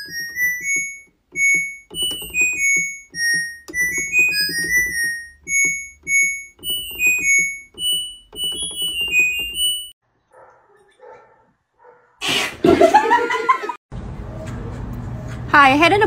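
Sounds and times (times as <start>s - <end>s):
plinky synthesizer melody: 0.0s - 9.9s.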